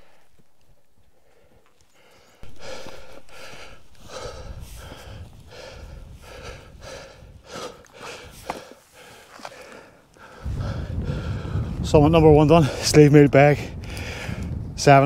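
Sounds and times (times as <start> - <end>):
person breathing hard: 1.1 - 11.8, 13.8 - 14.6
wind rumbling on microphone: 2.4 - 8.7, 10.2 - 15.0.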